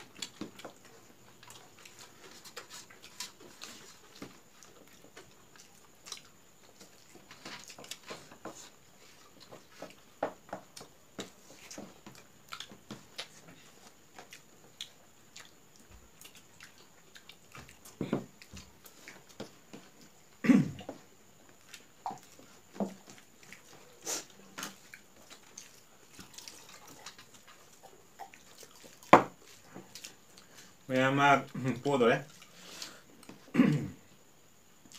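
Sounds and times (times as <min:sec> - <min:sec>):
chewing and lip smacks: 0:00.0 - 0:08.1, 0:10.7 - 0:20.0, 0:21.5 - 0:30.7.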